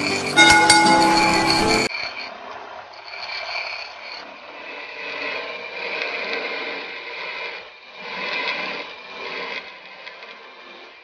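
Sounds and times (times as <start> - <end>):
grinding wheel grinding metal: 0.0 - 1.9.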